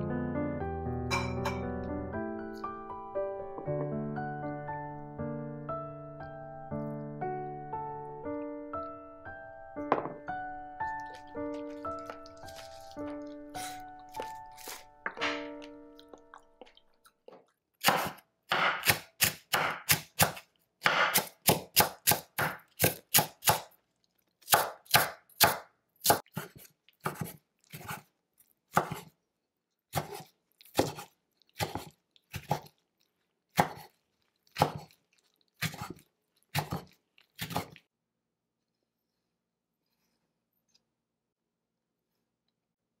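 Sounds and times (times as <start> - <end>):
knife chopping on wooden board: 17.8 - 23.7, 24.5 - 28.0, 28.7 - 29.1, 29.9 - 32.7, 33.6 - 33.9, 34.6 - 34.9, 35.6 - 37.8.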